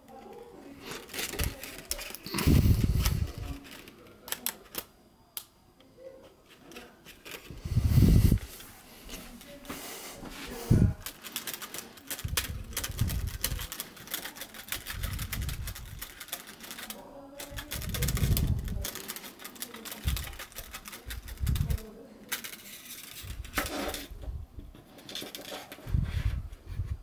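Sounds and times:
plastic model clicking and rattling: 0:00.0 - 0:02.4, 0:03.0 - 0:05.5, 0:10.9 - 0:24.1, 0:24.9 - 0:25.8.

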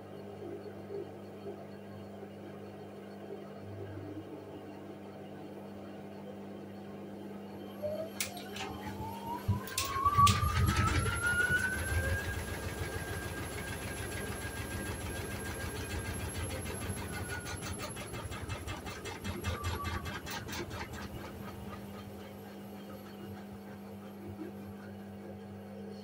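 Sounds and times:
washing machine spinning: 0:07.6 - 0:25.8.

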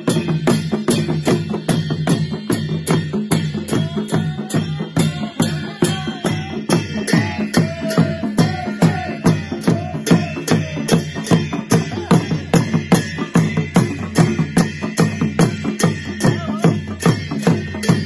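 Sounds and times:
barrel drums beaten with sticks: 0:00.0 - 0:18.0
men chanting: 0:03.6 - 0:13.7.

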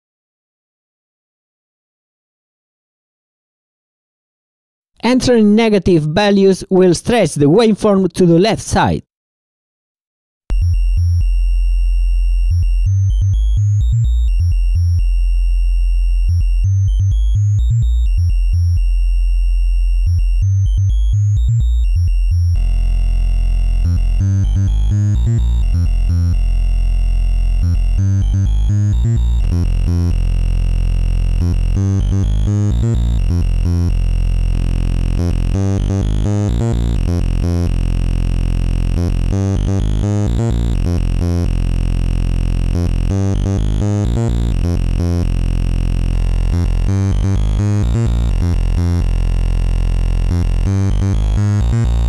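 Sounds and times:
synth repeating low notes: 0:10.5 - 0:52.0.

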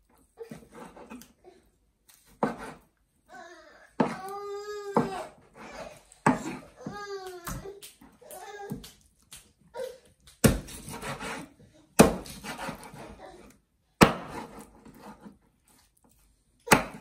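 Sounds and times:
knife chopping on wooden board: 0:02.3 - 0:02.8, 0:04.0 - 0:04.2, 0:06.2 - 0:07.0, 0:10.4 - 0:13.2, 0:14.0 - 0:15.4, 0:16.7 - 0:17.0
blade scraping through meat: 0:10.5 - 0:11.6.

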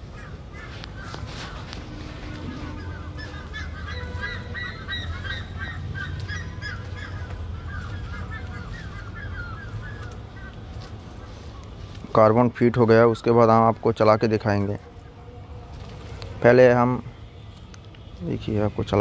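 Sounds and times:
steady low hum: 0:00.0 - 0:12.1
birds calling: 0:00.0 - 0:19.0.

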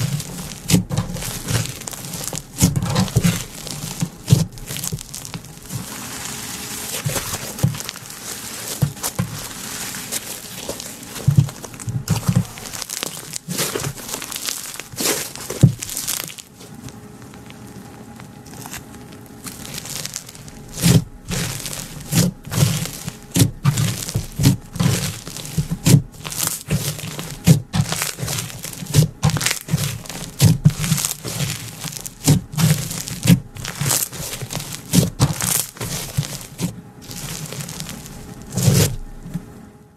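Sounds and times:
slime crackling and squishing: 0:00.0 - 0:39.6.

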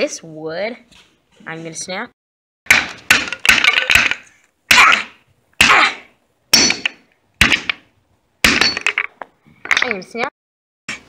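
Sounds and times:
hammer striking wooden boards: 0:02.7 - 0:05.8, 0:06.6 - 0:09.1.

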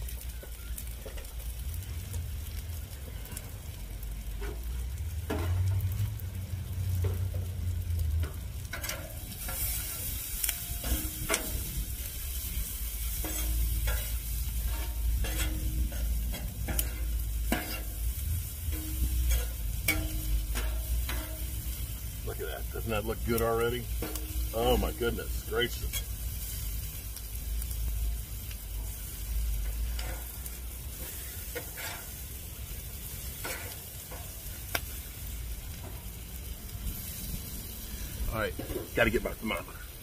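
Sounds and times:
vegetables sizzling on griddle: 0:00.0 - 0:40.0
low rumble: 0:01.6 - 0:31.4
metal spatula scraping griddle: 0:05.3 - 0:05.6, 0:08.2 - 0:22.2, 0:22.9 - 0:26.7, 0:29.6 - 0:34.5.

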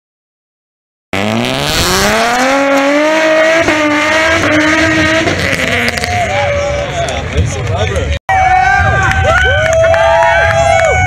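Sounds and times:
car engine revving hard: 0:01.2 - 0:06.4.

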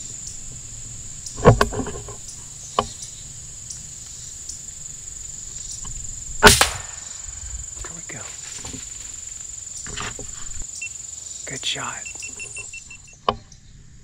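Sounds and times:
high insect buzz: 0:00.0 - 0:13.2
air rifle shot crack: 0:06.4 - 0:07.5.

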